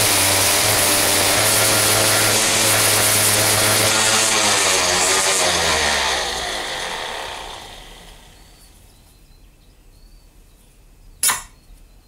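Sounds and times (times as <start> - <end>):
orbital sander on steel: 0.0 - 8.8.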